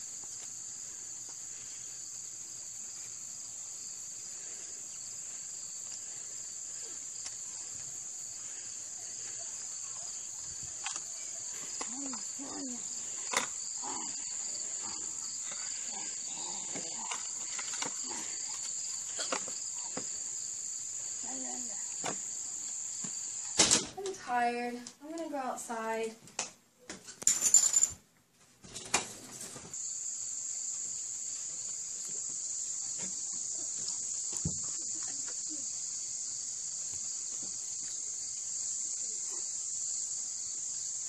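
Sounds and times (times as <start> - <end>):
high-pitched insect chorus: 0.0 - 24.6, 29.7 - 41.0.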